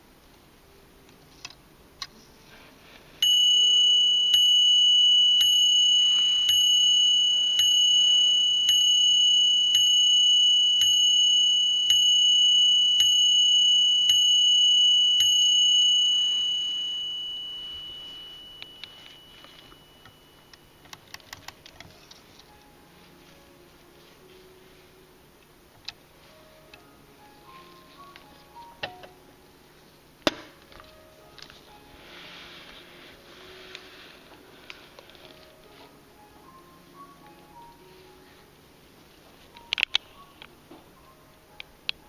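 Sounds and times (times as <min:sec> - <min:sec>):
clock bell striking: 0:03.2 - 0:20.8.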